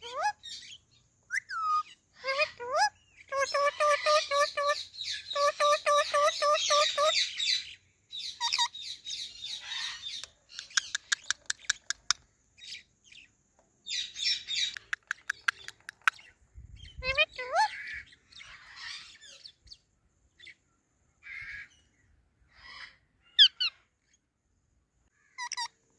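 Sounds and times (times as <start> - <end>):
harsh bird calls: 0.0 - 13.3, 13.9 - 24.2, 25.1 - 25.9
parakeets chattering: 1.4 - 13.2, 13.9 - 19.3, 25.3 - 25.8
sharp bird clicks: 10.1 - 12.3, 14.5 - 16.3.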